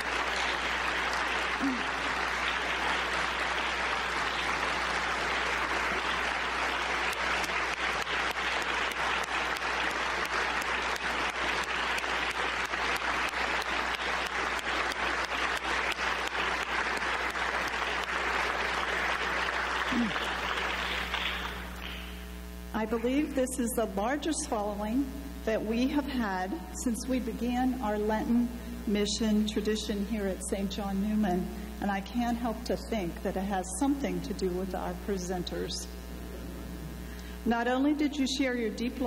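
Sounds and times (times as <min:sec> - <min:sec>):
crowd applauding: 0:00.0 - 0:22.4
low steady hum: 0:00.0 - 0:39.0.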